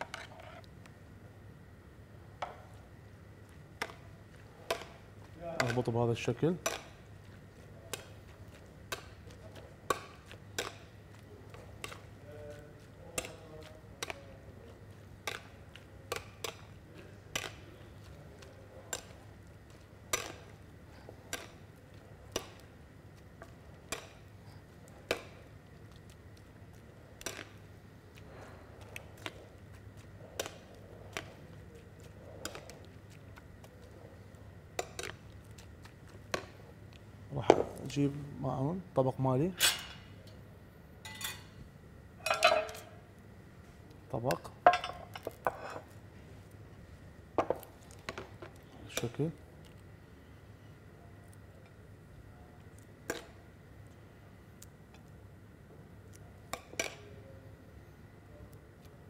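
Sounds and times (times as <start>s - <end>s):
low steady hum: 0.0s - 59.0s
metal spoon clinking ceramic bowl: 41.0s - 41.5s.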